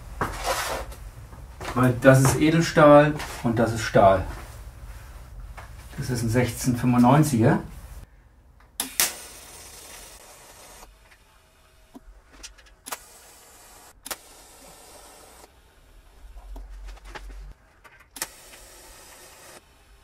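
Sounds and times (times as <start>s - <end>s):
welding arc hissing: 8.8s - 10.9s, 12.9s - 15.5s, 18.2s - 19.6s.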